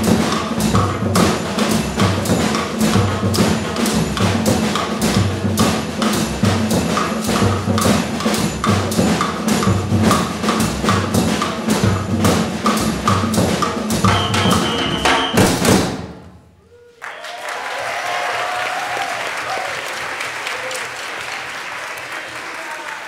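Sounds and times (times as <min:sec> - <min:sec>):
orchestra playing with drums: 0:00.0 - 0:16.4
audience applause: 0:16.9 - 0:23.0.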